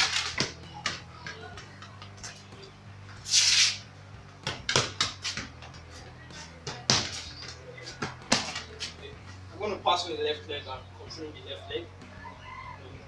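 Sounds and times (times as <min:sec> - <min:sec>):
hissing scuff: 0:03.2 - 0:03.8.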